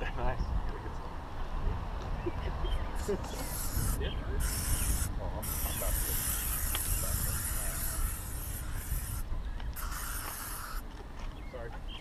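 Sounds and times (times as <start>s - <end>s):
aerosol spray can hissing: 3.4s - 9.2s, 9.8s - 10.8s.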